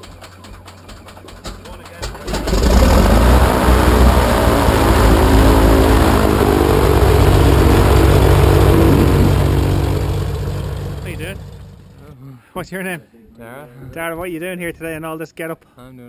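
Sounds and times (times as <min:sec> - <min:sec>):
propeller aircraft engine droning: 0:02.0 - 0:12.1
rushing noise: 0:02.4 - 0:12.1.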